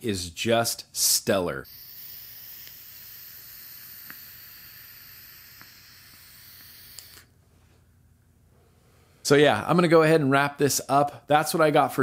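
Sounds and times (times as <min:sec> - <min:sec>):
air hissing through vape tank: 0:01.6 - 0:07.3.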